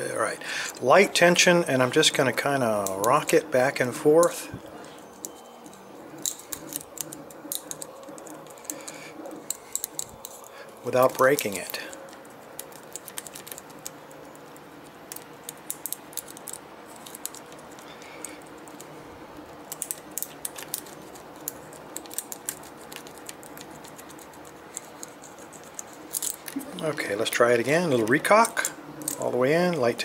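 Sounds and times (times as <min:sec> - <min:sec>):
key clicking and scratching in padlock: 0:04.1 - 0:26.6, 0:28.1 - 0:29.3.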